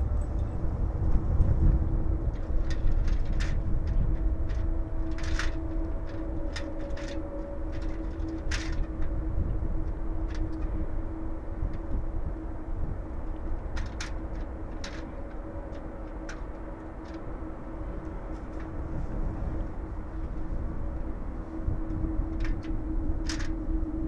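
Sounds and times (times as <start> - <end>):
distant jet engines rumbling: 0.0 - 24.0.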